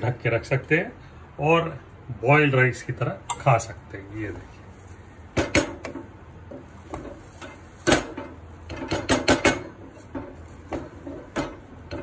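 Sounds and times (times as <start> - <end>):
rice rustling: 4.3 - 5.4, 6.0 - 8.8, 9.7 - 12.0
wooden spoon knocking metal pot: 7.9 - 12.0.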